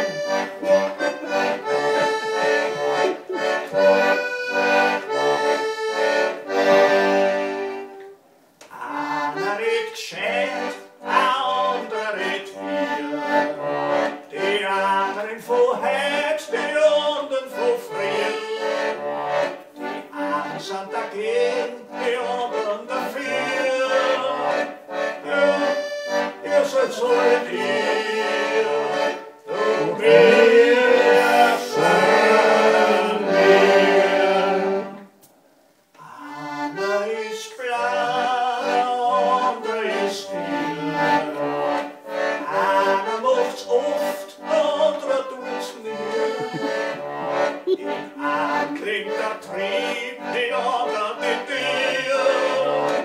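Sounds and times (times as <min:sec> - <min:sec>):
person singing: 0:00.0 - 0:04.8, 0:26.4 - 0:35.0, 0:36.0 - 0:41.7, 0:42.3 - 0:53.0
accordion playing: 0:00.0 - 0:35.2, 0:36.0 - 0:53.0.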